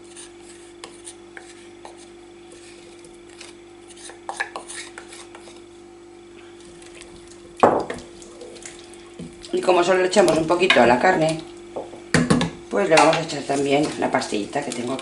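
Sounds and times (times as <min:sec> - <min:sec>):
wooden spoon scraping ceramic bowl: 0:00.0 - 0:05.6.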